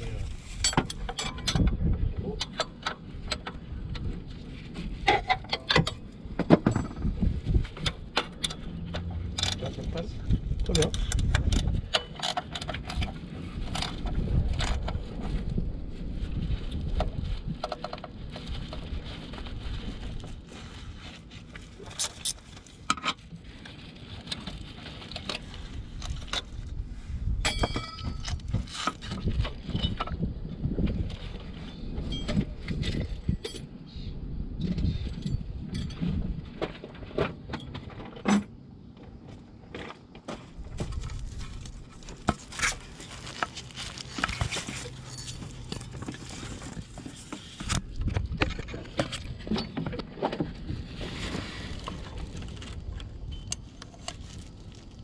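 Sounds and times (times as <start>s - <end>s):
hands rubbing and shuffling: 40.5s - 48.0s.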